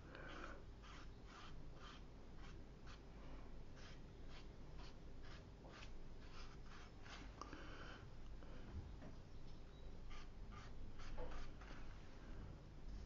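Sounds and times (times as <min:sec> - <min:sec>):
brush strokes on paper: 0:00.0 - 0:03.1, 0:03.7 - 0:07.4, 0:10.1 - 0:13.0.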